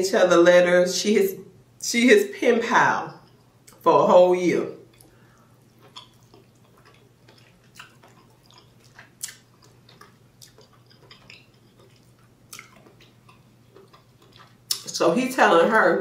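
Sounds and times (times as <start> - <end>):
person chewing: 4.8 - 15.0.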